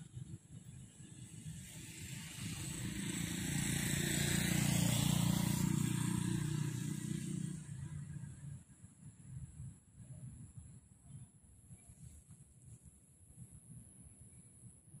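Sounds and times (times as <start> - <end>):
vehicle driving past: 1.0 - 8.7.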